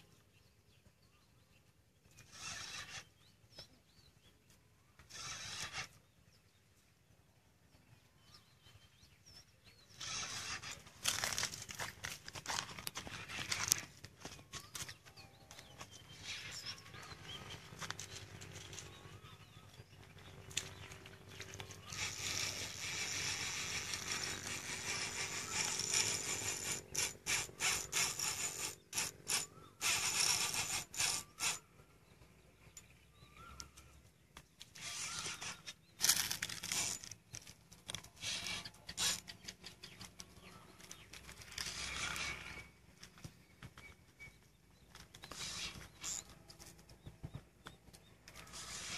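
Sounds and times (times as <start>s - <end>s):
fishing reel drag buzzing: 2.2s - 3.2s, 5.1s - 6.0s, 9.9s - 11.8s, 20.6s - 31.7s, 34.7s - 39.3s, 41.2s - 42.8s, 45.2s - 46.4s, 48.3s - 48.9s.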